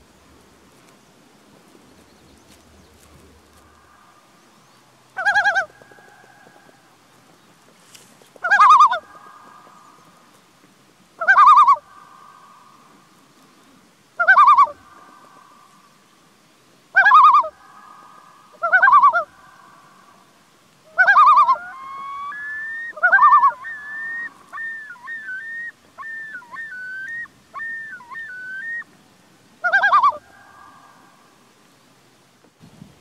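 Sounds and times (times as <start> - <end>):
loon quavering calls: 5.2 - 6.8, 8.4 - 10.2, 11.2 - 13.0, 14.2 - 15.6, 16.9 - 20.2, 20.9 - 28.9, 29.6 - 31.4
thin whistled call: 17.0 - 28.9.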